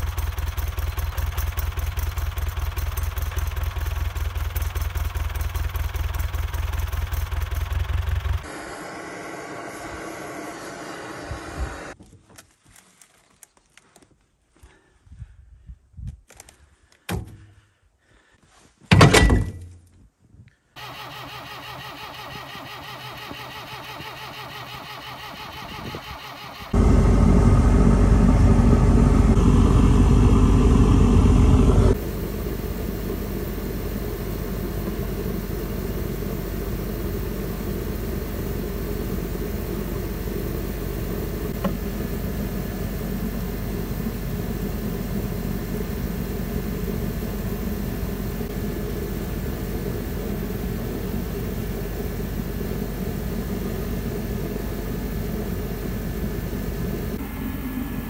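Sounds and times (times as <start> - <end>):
diesel tractor engine idling: 0.0 - 8.7, 20.8 - 58.0.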